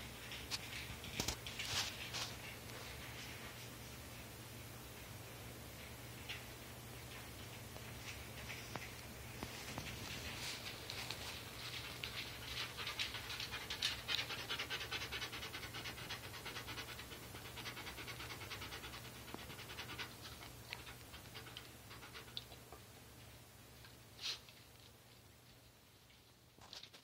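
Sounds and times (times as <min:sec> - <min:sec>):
dog panting: 0:09.6 - 0:22.6.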